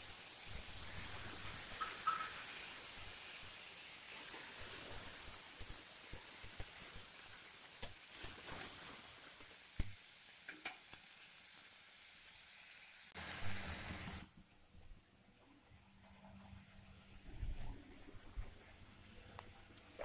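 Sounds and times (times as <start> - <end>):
paste sizzling in hot oil: 0.0 - 14.3.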